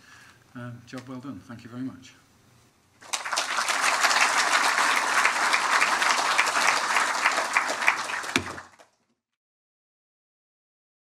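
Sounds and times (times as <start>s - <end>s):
audience applauding: 3.0s - 9.0s.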